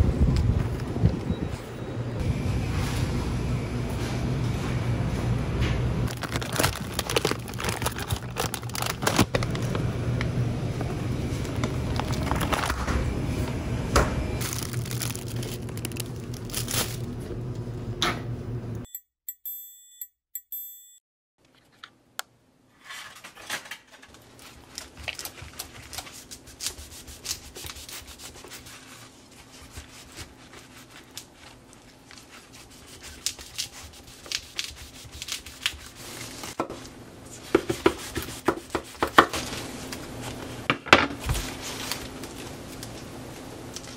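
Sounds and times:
plastic food packs crinkling: 6.1s - 9.9s, 11.4s - 12.9s, 14.4s - 17.1s.

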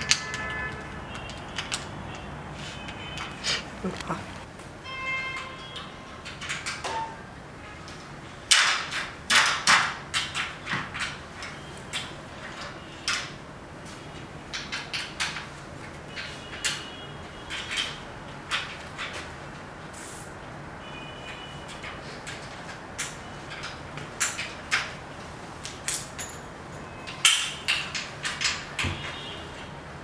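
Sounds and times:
metal frame clicks and knocks: 27.1s - 29.3s.

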